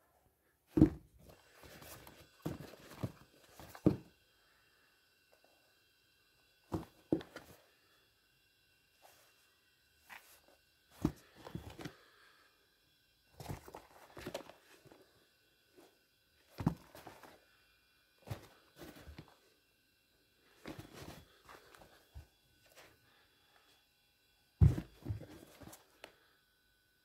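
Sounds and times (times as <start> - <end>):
sneakers knocking on carpet: 24.6 - 25.3.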